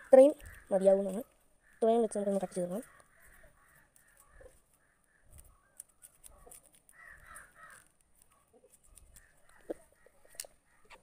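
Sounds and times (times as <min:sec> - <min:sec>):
faint bird calls: 0:00.0 - 0:11.0
scissors snipping leaf: 0:05.4 - 0:11.0.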